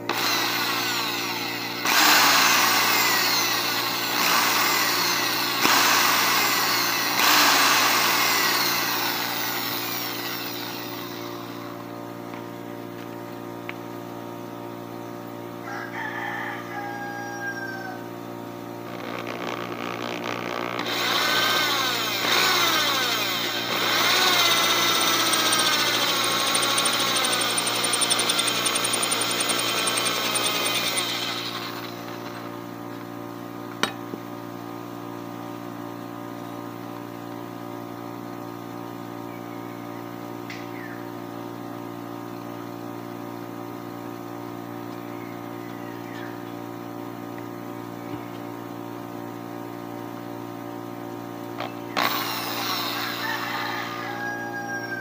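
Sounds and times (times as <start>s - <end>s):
drill motor hum: 0.0s - 13.1s, 18.8s - 33.1s, 51.6s - 55.0s
drill bit screeching on metal: 0.1s - 11.6s, 20.2s - 32.0s, 52.0s - 55.0s.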